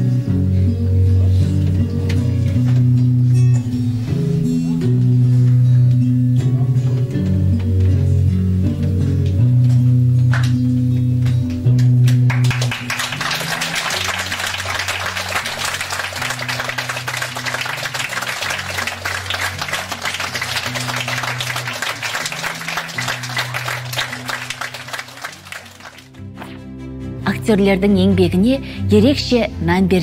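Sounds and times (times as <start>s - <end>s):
music with low held guitar notes: 0.0s - 30.0s
audience applauding: 11.8s - 26.4s.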